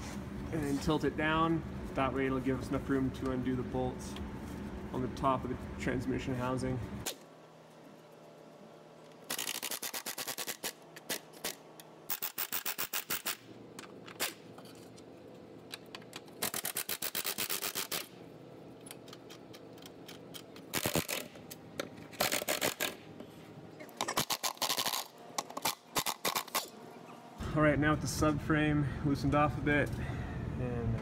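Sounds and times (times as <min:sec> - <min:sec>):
ratchet wrench clicking: 0:09.3 - 0:13.4.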